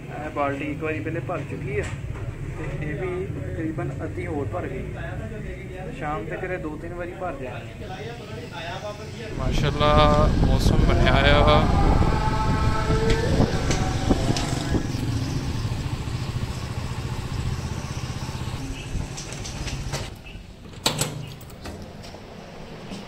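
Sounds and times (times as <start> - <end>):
motorcycle engine running: 11.8 - 20.1.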